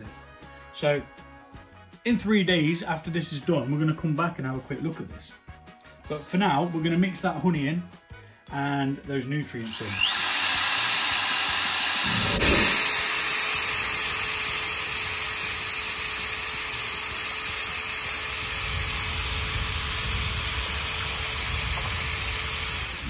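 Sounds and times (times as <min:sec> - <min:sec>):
electric drill mixing liquid: 0:09.6 - 0:23.0.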